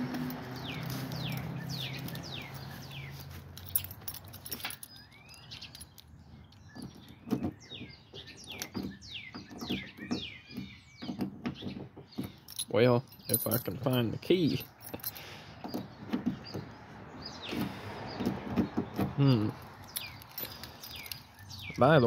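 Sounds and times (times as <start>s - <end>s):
birds chirping: 0.0s - 22.0s
keyring jingling and clicking: 0.3s - 7.1s, 12.3s - 15.2s, 19.6s - 21.4s.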